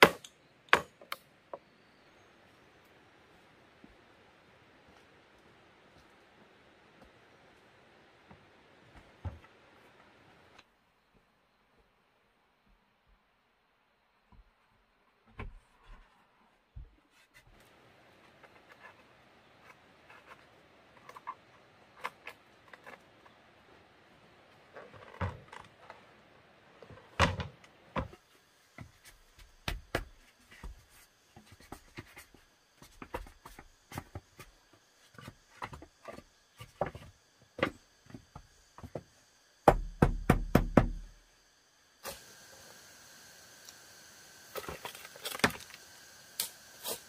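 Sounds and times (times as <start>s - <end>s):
heavy knocks on wood: 39.7s - 41.1s.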